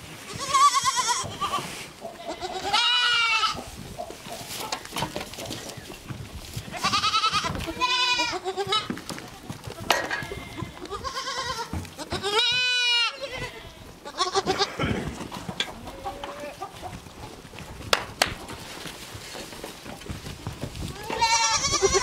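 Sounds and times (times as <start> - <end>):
goat kids bleating: 0.2 - 4.8, 6.6 - 16.9, 20.8 - 22.0.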